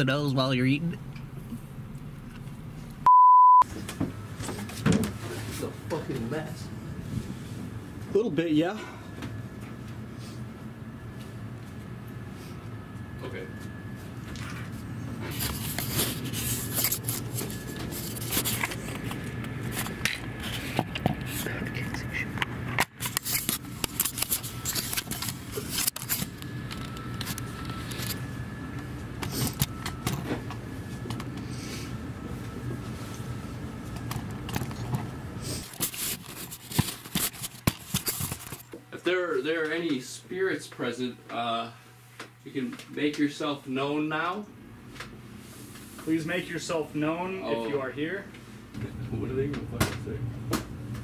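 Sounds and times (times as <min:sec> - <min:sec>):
faint high whine: 0:08.1 - 0:22.4
cloth rubbing on microphone: 0:15.2 - 0:19.0.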